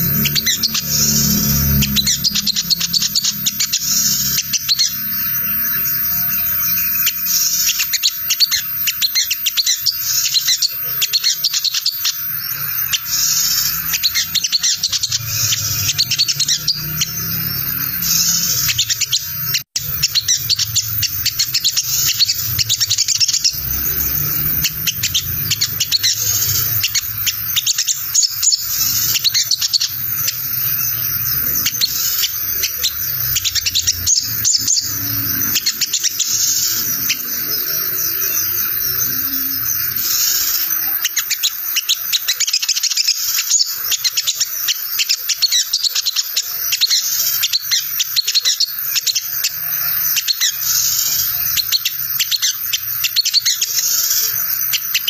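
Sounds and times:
sunbird scratchy twittering: 0:00.0 - 0:55.0.

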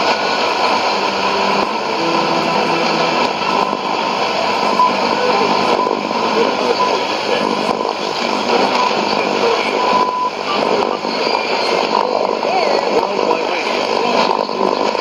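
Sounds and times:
thin radio whistle: 0:00.0 - 0:11.8
radio static hiss: 0:00.0 - 0:15.0.

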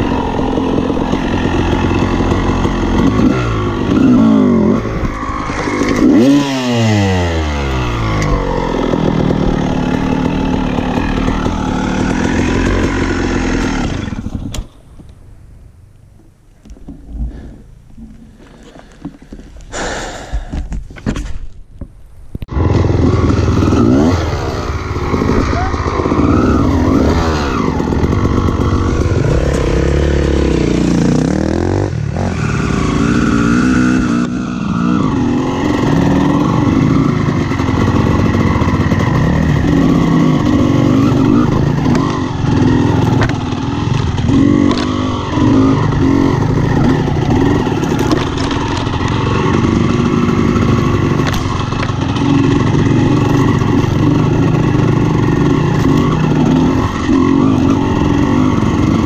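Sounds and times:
dirt bike engine revving: 0:00.0 - 0:14.7, 0:22.5 - 0:59.0
bike knocks over rough ground: 0:20.4 - 0:21.9.

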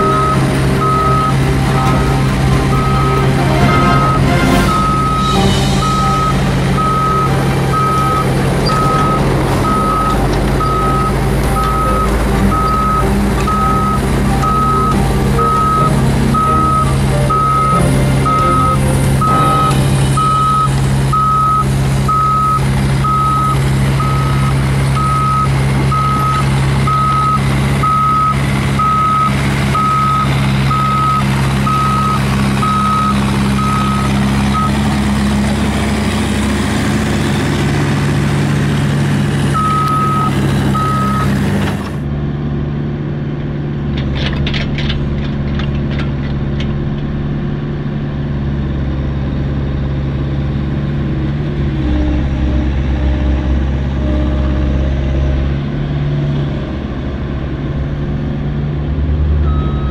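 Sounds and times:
travel alarm beeping: 0:00.0 - 0:35.1, 0:39.5 - 0:41.9
diesel engine running: 0:00.0 - 0:59.9.

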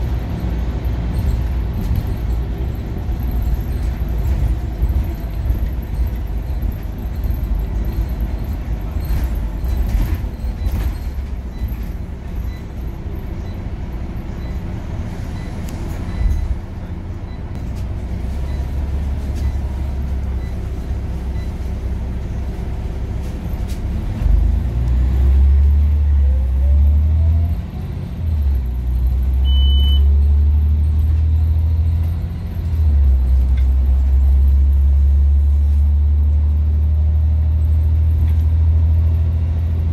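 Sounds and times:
bus engine running: 0:00.0 - 0:39.9
short high beep: 0:29.4 - 0:30.1.

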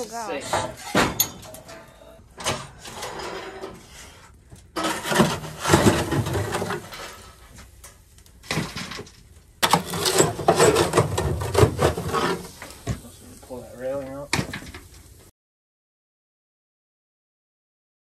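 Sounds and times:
metal poker scraping coals: 0:02.6 - 0:15.0.

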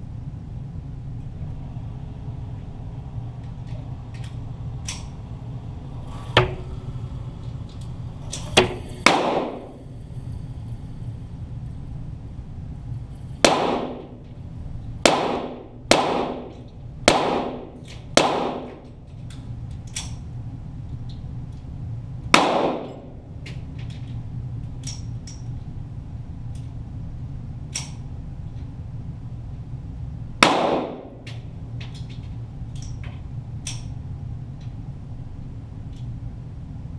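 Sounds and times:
steady low hum: 0:00.0 - 0:36.9
pistol shots echoing: 0:08.6 - 0:09.7, 0:13.4 - 0:14.2, 0:15.0 - 0:18.8, 0:22.3 - 0:23.2, 0:30.4 - 0:31.2.

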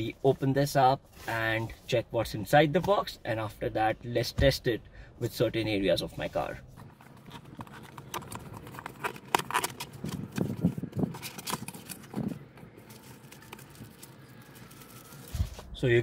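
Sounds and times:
cardboard and packaging rustling: 0:06.3 - 0:15.8.

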